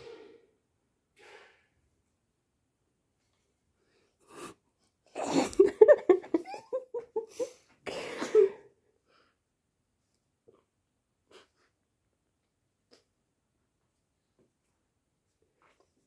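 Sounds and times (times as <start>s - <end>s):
person laughing: 5.2s - 7.6s.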